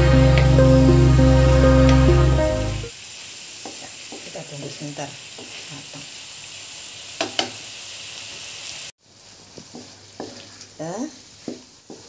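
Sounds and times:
food sizzling in a pan: 0.0s - 12.0s
spatula stirring: 9.6s - 10.7s, 11.3s - 12.0s
spatula knocking on pan: 11.5s - 12.0s.

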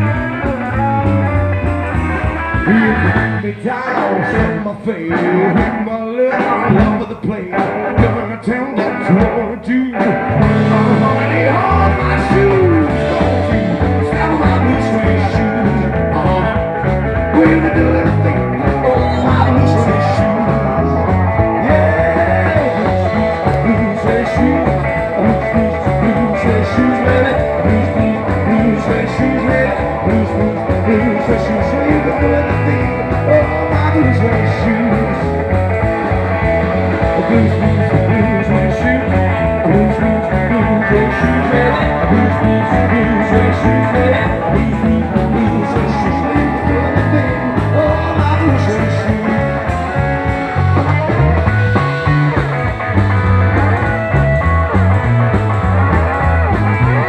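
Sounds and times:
live rock band playing: 0.0s - 57.0s
man singing: 2.1s - 52.9s.

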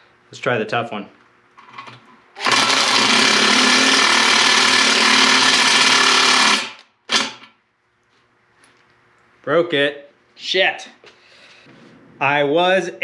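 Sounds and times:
impact driver hammering: 2.4s - 7.5s.

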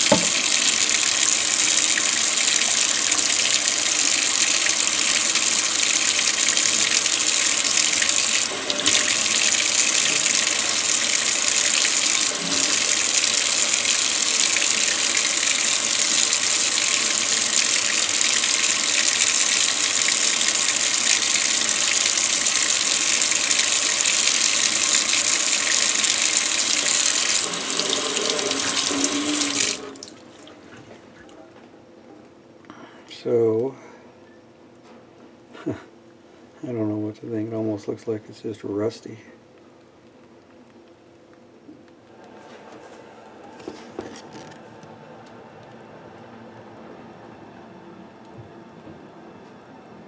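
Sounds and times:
faucet running into steel sink: 0.0s - 30.3s.

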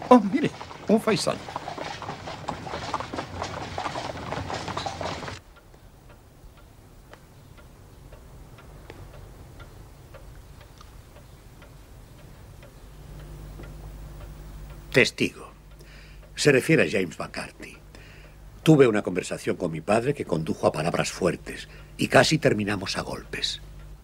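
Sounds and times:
horse carriage clattering: 0.0s - 5.4s
low hum: 0.0s - 16.2s
clock ticking: 7.4s - 24.0s.

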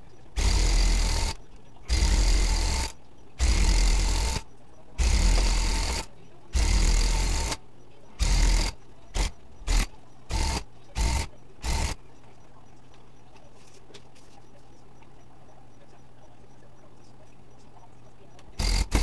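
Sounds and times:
electric tufting gun running: 0.4s - 4.4s, 5.0s - 7.6s, 8.2s - 12.0s, 18.6s - 19.0s.

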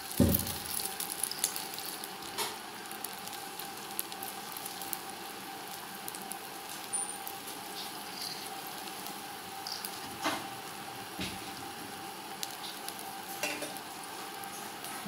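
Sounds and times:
egg sizzling in hot oil: 0.0s - 15.0s.

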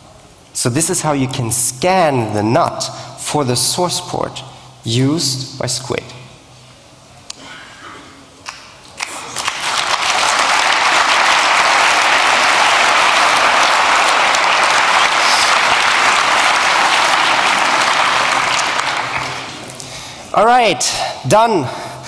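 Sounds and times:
audience applauding: 9.0s - 19.8s.

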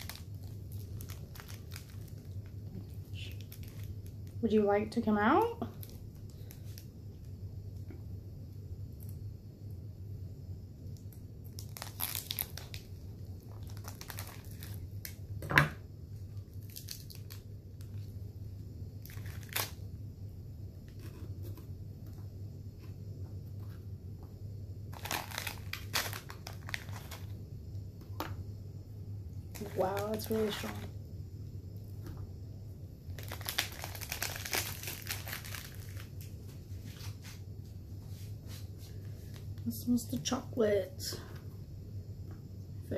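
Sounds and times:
wrapper crinkling and tearing: 0.0s - 4.4s, 5.6s - 6.9s, 11.5s - 15.2s, 16.5s - 18.1s, 19.0s - 19.8s, 24.9s - 27.3s, 29.5s - 30.9s, 33.1s - 36.3s
low steady hum: 0.0s - 42.9s.

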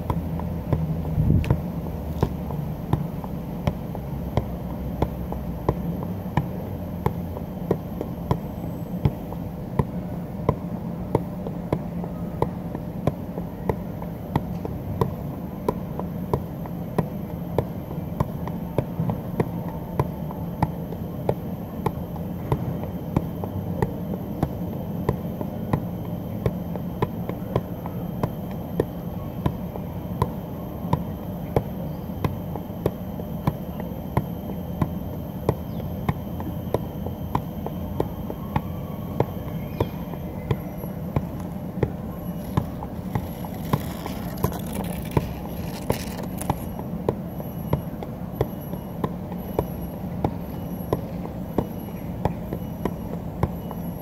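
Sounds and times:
constant low hum: 0.0s - 54.0s
ball knocking off feet: 37.3s - 46.8s.

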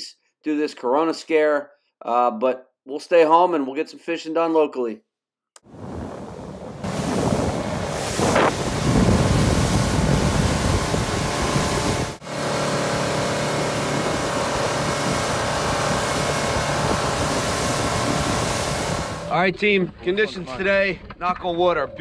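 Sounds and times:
wind on microphone: 5.7s - 12.2s, 12.8s - 19.3s
water rushing off hull: 5.7s - 19.4s
boat engine hum: 5.7s - 20.2s.

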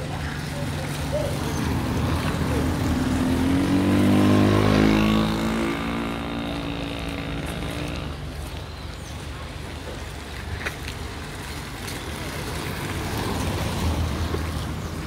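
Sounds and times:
street noise: 0.0s - 15.0s
vehicle driving past: 1.6s - 8.4s.

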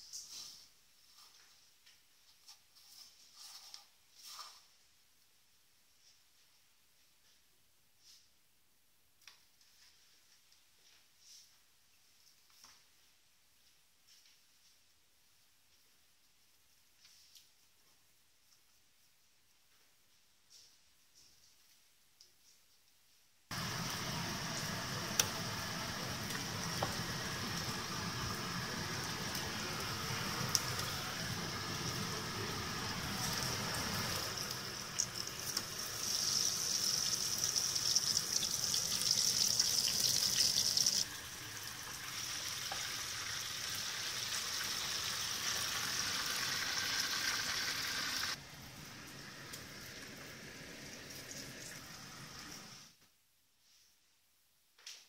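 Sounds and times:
oil sizzling in deep fryer: 23.5s - 52.9s.

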